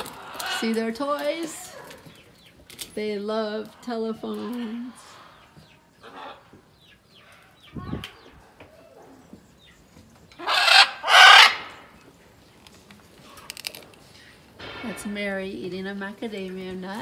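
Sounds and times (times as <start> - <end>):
macaw squawks: 10.4 - 11.8
patter of clicks: 12.6 - 14.3.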